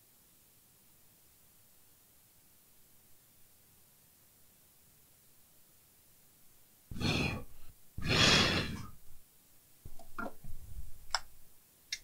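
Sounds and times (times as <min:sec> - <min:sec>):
strong breath out: 0:06.9 - 0:09.0.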